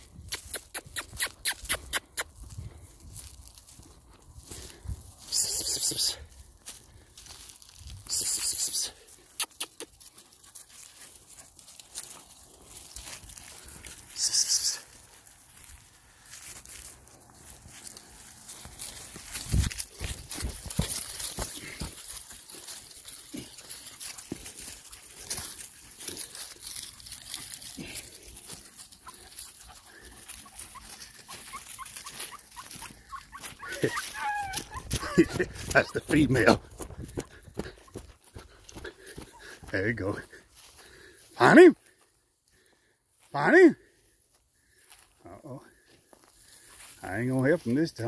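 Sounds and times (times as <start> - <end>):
dry leaves rustling and crunching: 2.4 - 9.3, 9.9 - 36.8
puppies yipping: 18.2 - 36.1.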